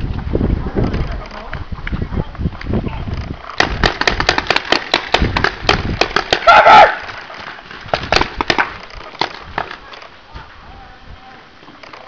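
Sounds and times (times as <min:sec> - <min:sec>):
paintball markers firing: 0:03.6 - 0:06.7, 0:07.3 - 0:10.1
loud shout: 0:06.4 - 0:07.0.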